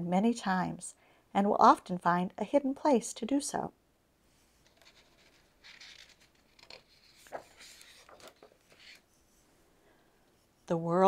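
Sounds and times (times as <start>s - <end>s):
book page turning: 4.6s - 9.2s.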